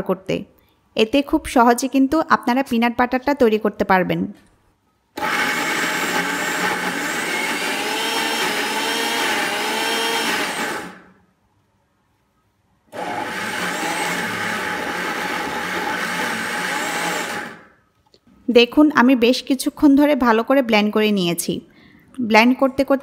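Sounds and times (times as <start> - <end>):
mixer grinder motor whine: 5.2 - 11.1, 12.9 - 17.7.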